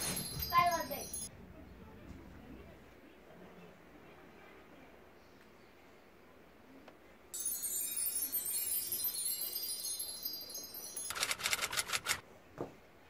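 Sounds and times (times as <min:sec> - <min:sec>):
twinkling sparkle chime: 0:00.0 - 0:01.3, 0:07.3 - 0:11.4.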